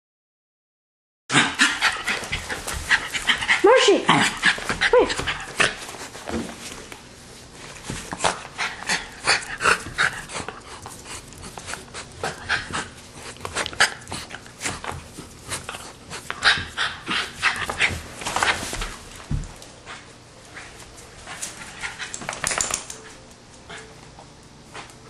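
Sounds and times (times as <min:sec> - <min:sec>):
dog panting: 0:01.3 - 0:06.2, 0:08.0 - 0:18.8.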